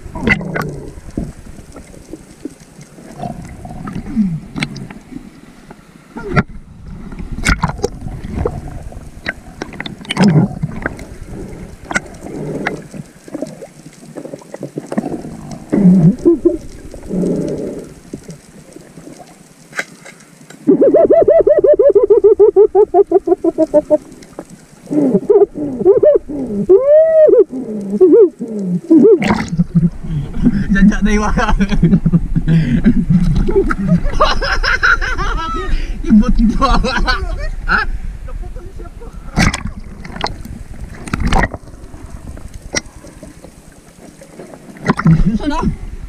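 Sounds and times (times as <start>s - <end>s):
muffled underwater water noise: 0.0s - 46.0s
swooping underwater calls: 15.7s - 18.1s, 20.7s - 24.2s, 24.8s - 30.0s.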